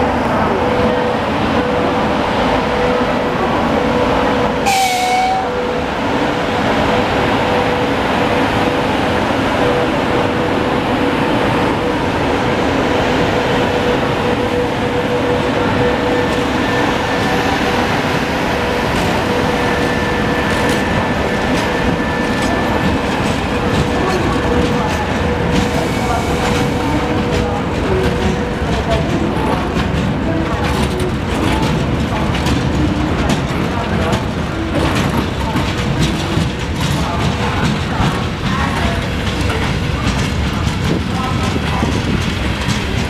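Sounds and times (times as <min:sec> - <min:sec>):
freight train rolling past: 0:00.0 - 0:43.0.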